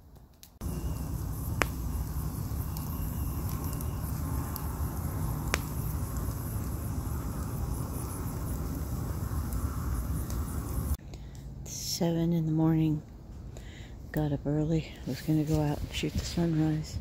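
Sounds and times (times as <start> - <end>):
burning logs popping: 0.1 - 11.0
fire flames rushing: 0.4 - 11.0.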